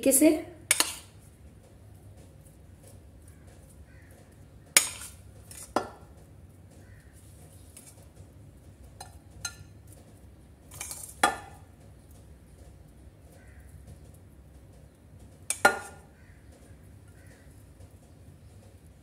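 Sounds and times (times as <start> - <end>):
metal spoon clinking on dishes: 0.7 - 1.1, 4.8 - 5.9, 9.0 - 9.7.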